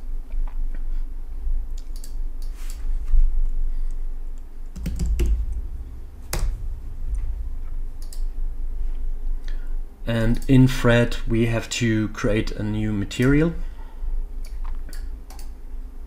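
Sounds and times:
low steady hum: 0.0 - 16.0
typing on a keyboard: 4.8 - 5.4.

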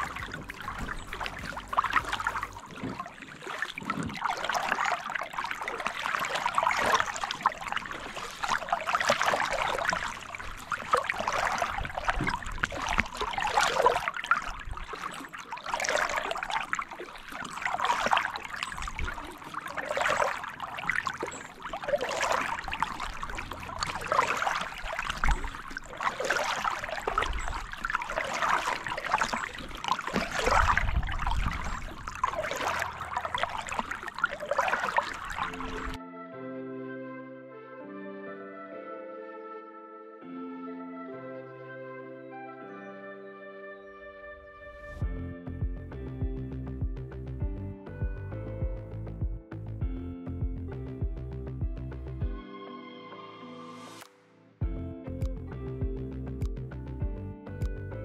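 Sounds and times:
paddle splashing in water: 0.0 - 36.0
water dripping: 0.0 - 36.0.

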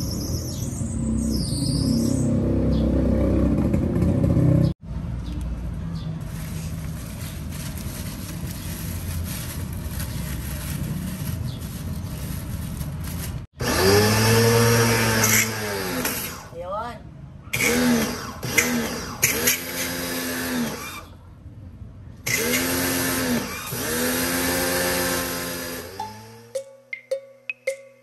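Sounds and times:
pressure washer motor hum: 13.6 - 16.4, 22.3 - 26.5.

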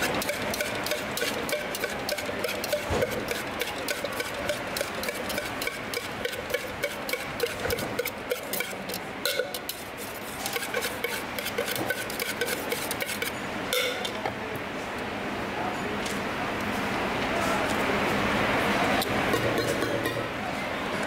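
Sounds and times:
fruit pieces rattling in metal cup: 0.0 - 13.3.

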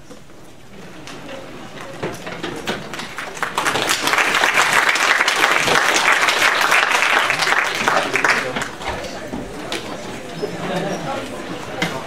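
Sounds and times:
audience applauding: 2.9 - 8.9.

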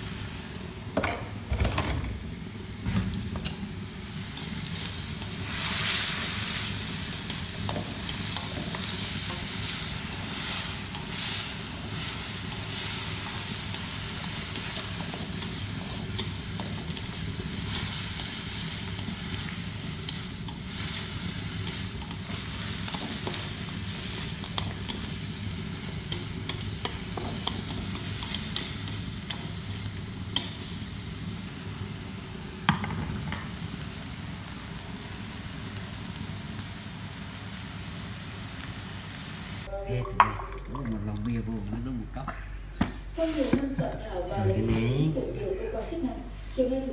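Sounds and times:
meat sizzling in a wok: 0.0 - 1.4, 2.2 - 39.7
stirring scrapes and knocks on pan: 26.0 - 28.7.

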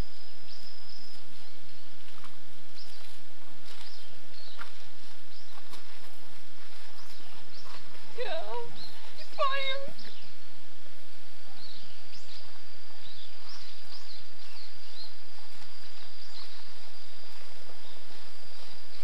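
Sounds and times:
steady hiss: 0.0 - 19.0
bird chirps: 6.7 - 10.4, 11.5 - 19.0.

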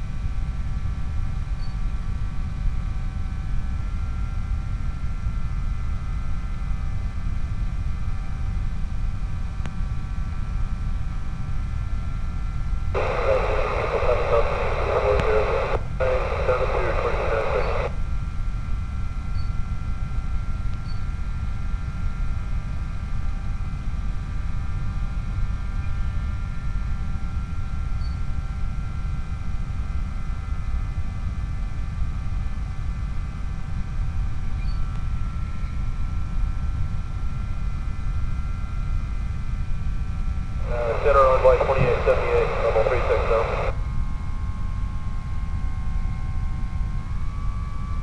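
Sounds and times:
aircraft drone in flight: 0.0 - 28.3, 40.7 - 43.8.

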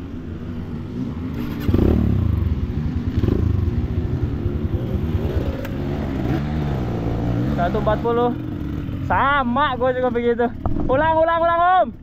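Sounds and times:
dirt bike engine revving: 0.6 - 10.8.

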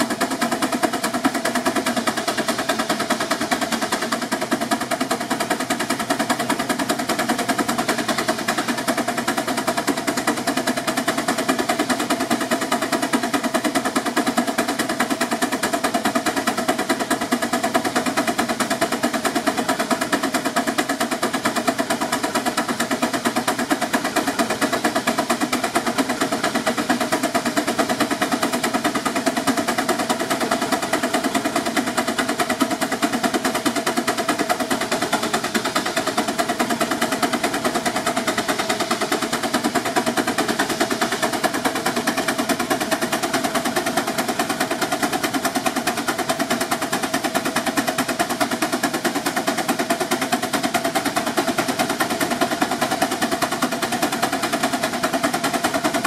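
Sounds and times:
steam engine exhaust chuffing: 0.0 - 56.0.

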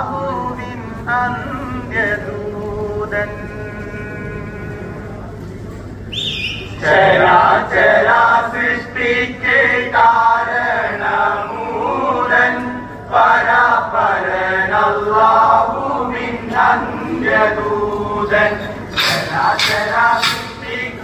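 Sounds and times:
group singing in chorus: 6.8 - 21.0.

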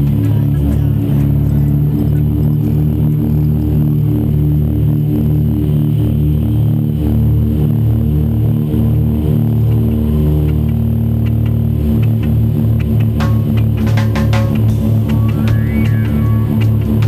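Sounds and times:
rock music chords: 11.2 - 17.0.

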